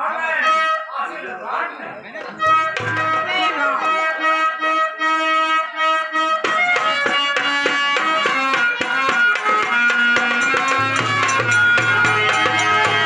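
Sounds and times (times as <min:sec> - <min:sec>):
harmonium playing a melody: 0:02.4 - 0:13.0
hand drum strokes: 0:08.2 - 0:13.0.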